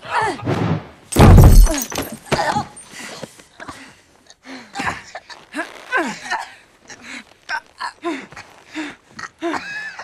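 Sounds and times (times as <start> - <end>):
body crashing down: 0.5 - 2.6
something breaking: 1.1 - 2.4.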